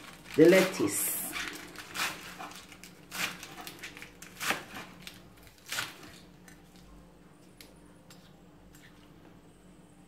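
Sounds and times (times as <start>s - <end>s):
lettuce leaves rustling: 0.0s - 6.8s.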